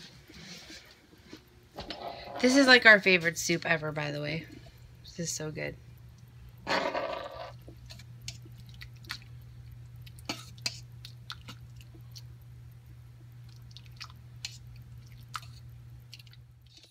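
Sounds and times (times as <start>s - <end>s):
steady low hum: 0.0s - 16.9s
spoon stirring soup: 6.7s - 12.4s, 13.2s - 16.9s.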